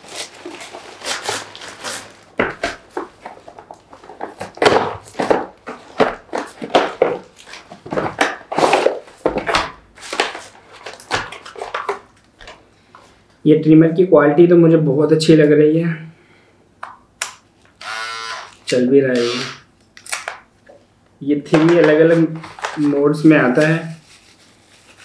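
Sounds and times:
plastic mailer bag crinkling: 0:00.0 - 0:02.4, 0:21.5 - 0:25.0.

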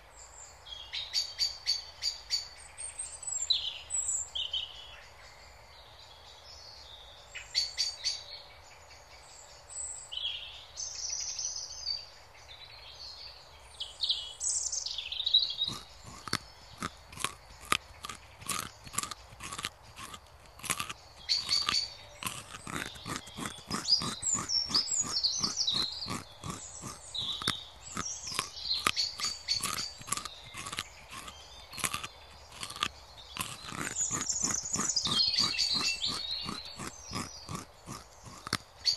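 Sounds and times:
small birds chirping: 0:12.9 - 0:38.9
rabbit chewing grass: 0:15.5 - 0:38.9.

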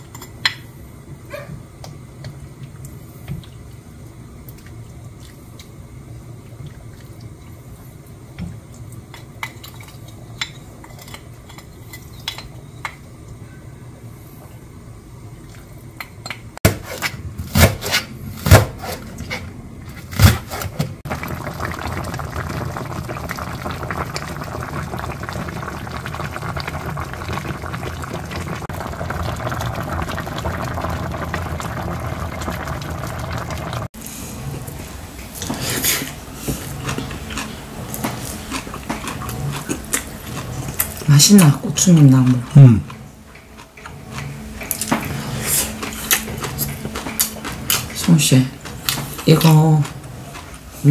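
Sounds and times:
stew bubbling: 0:21.0 - 0:50.9.

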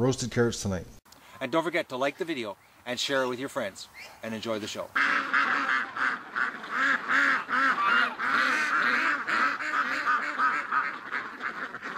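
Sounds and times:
ducks and geese quacking and honking: 0:04.0 - 0:11.9.

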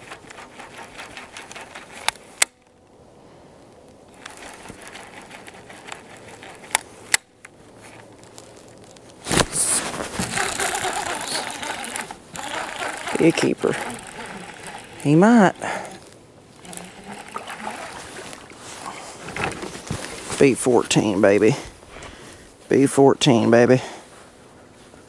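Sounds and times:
fishing reel cranking: 0:00.0 - 0:02.5, 0:04.1 - 0:06.8, 0:09.5 - 0:19.6
reel clicks: 0:00.0 - 0:02.8, 0:04.1 - 0:19.8.

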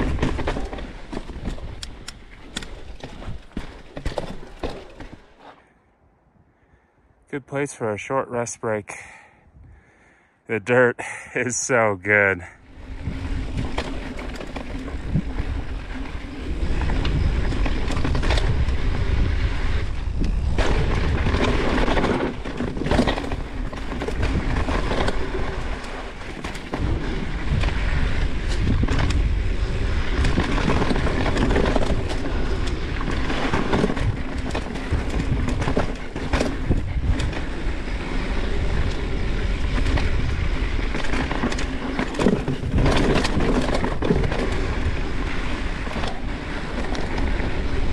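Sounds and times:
bike clattering over bumps: 0:00.0 - 0:05.4, 0:12.7 - 0:47.9
bike tyres rolling on dirt: 0:00.0 - 0:05.8, 0:12.4 - 0:47.9
wind rumble on microphone: 0:12.6 - 0:47.9.

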